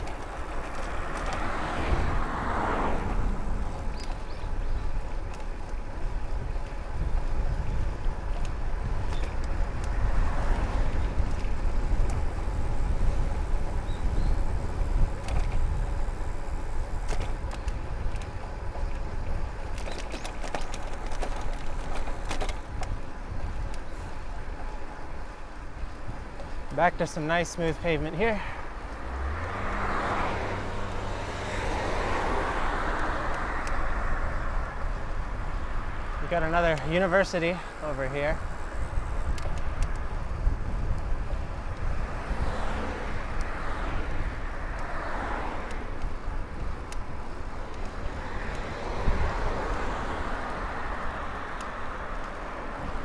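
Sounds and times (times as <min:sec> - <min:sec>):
bike clicks and rattles: 0:00.0 - 0:53.0
bike tyres on rough pavement: 0:00.0 - 0:53.0
car passing: 0:00.0 - 0:53.0
faint vehicle passing: 0:00.0 - 0:53.0
wind rumbling on microphone: 0:00.0 - 0:53.0.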